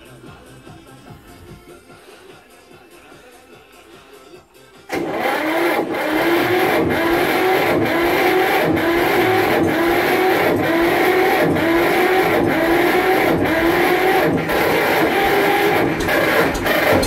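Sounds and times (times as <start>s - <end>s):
electric starter cranking diesel engine: 4.9s - 17.0s.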